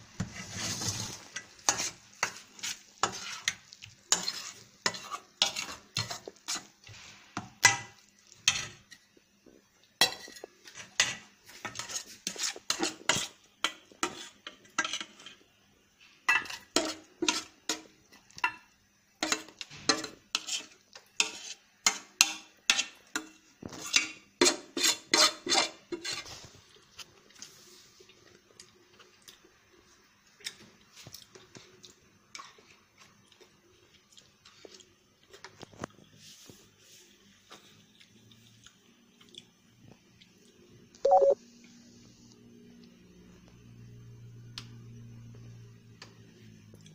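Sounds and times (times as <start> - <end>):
spoon scraping a steel pan: 0.2 - 6.7, 10.0 - 15.4, 19.2 - 23.0, 23.7 - 26.3.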